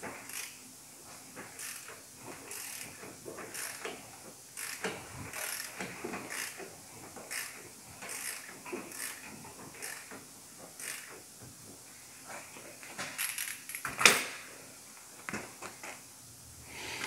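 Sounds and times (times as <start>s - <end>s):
ratchet wrench clicking: 0.2s - 0.6s, 1.6s - 1.9s, 2.5s - 3.9s, 4.6s - 6.6s, 7.3s - 10.2s, 10.8s - 11.2s, 13.2s - 13.9s.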